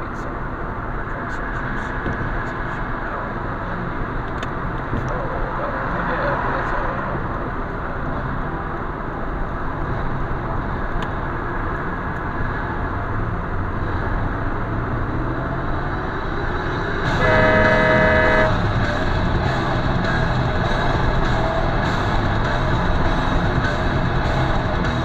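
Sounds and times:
tyre and road noise: 0:00.0 - 0:25.0
vehicle horn: 0:17.1 - 0:18.6.

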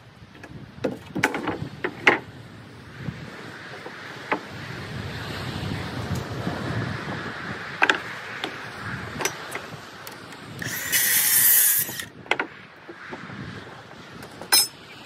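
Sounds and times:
circular saw cutting board: 0:10.6 - 0:12.1.

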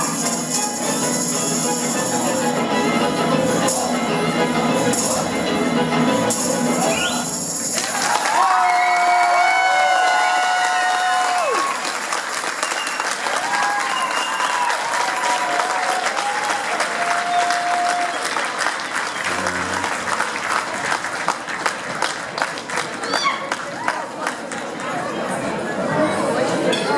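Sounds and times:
audience applauding: 0:07.7 - 0:24.9.

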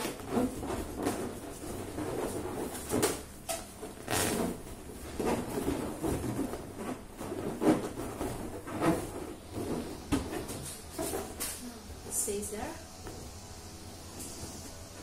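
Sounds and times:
balloons rubbing together: 0:00.0 - 0:11.6.

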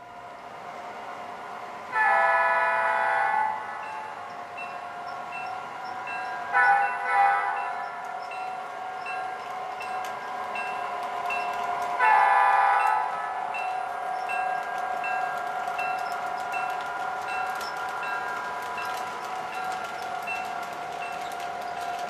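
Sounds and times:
locomotive horn blast: 0:02.0 - 0:03.8, 0:06.6 - 0:07.7, 0:12.0 - 0:13.4
locomotive bell ringing: 0:03.3 - 0:21.8.

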